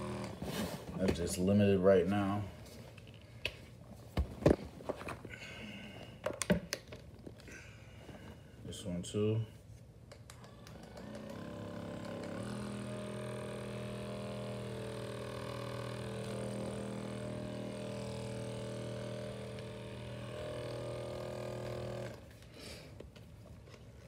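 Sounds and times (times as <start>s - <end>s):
massage gun motor buzzing: 0.0s - 0.4s, 10.3s - 22.4s.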